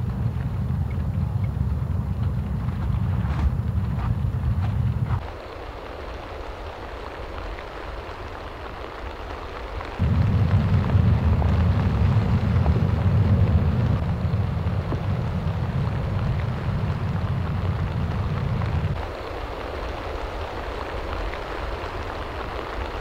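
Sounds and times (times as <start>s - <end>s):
loud low rumble: 0.0s - 6.0s, 9.8s - 20.9s
steady rain hiss: 0.0s - 23.0s.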